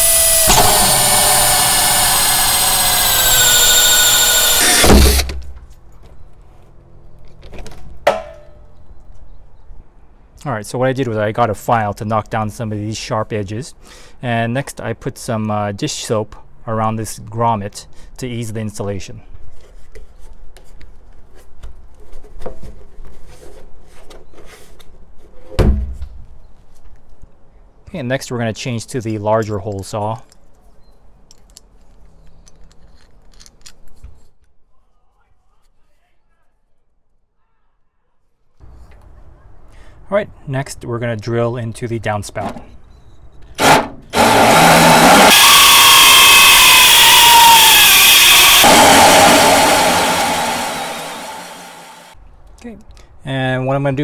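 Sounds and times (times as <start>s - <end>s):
hole saw grinding and squealing: 0.0s - 5.4s, 43.1s - 52.2s
drill spinning freely: 0.0s - 5.5s, 43.6s - 52.2s.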